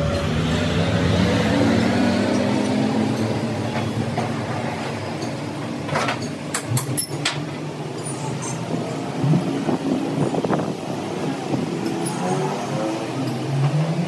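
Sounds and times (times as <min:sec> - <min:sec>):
sharp metallic clinks: 0:11.8 - 0:12.6.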